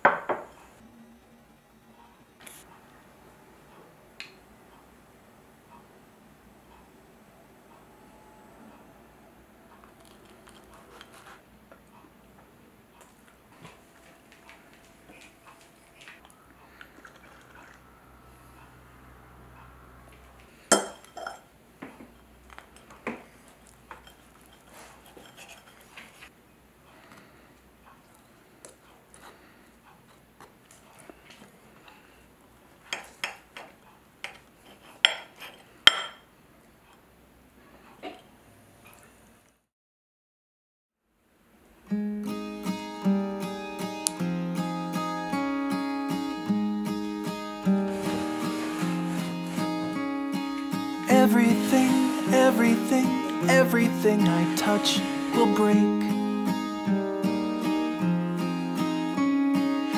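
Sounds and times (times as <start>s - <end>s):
cutlery scraping a plate: 23.9s - 26.2s, 34.3s - 36.2s.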